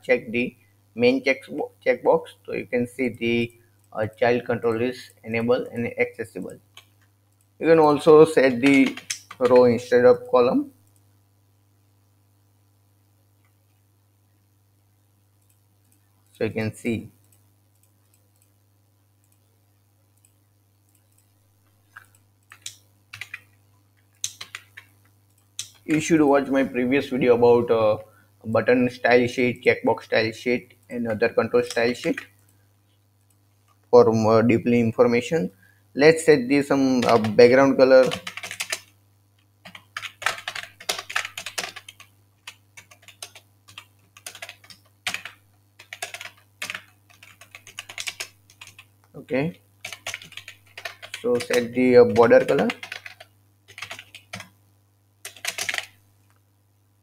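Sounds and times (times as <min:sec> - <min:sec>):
faint room hum: 0:00.0 - 0:57.0
computer keyboard typing: 0:06.7 - 0:09.8, 0:20.2 - 0:23.5, 0:24.1 - 0:26.5, 0:30.9 - 0:32.5, 0:36.9 - 0:39.0, 0:39.6 - 0:48.9, 0:49.8 - 0:54.6, 0:55.2 - 0:56.0.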